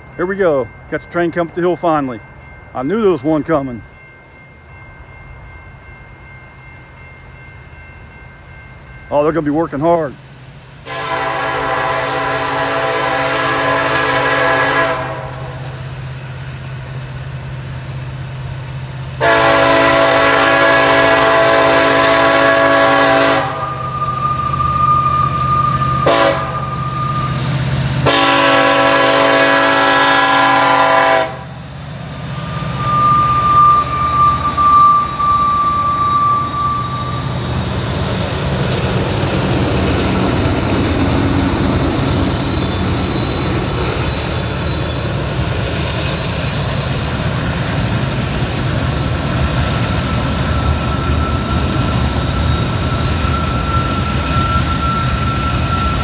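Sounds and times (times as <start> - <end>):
train wheel noise: 0.0 - 56.0
locomotive air horn blasts: 10.8 - 15.8, 19.2 - 27.4, 28.0 - 31.6
thin high tone: 23.6 - 27.8, 32.1 - 46.2.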